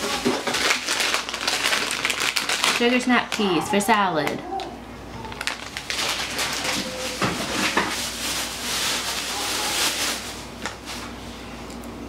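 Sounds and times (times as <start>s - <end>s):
plastic bags rustling: 0.0s - 11.3s.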